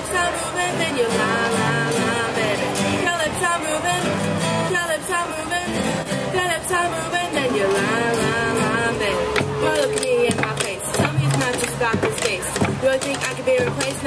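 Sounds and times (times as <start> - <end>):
acoustic guitars strummed: 0.0 - 14.0.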